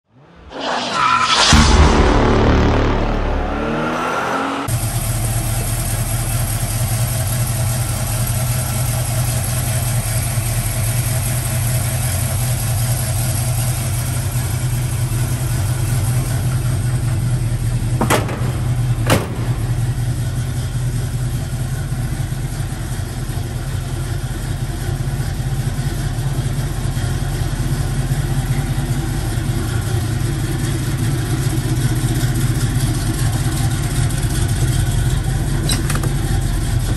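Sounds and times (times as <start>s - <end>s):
intro sound effect: 0.5s - 4.7s
truck engine idling: 4.7s - 36.9s.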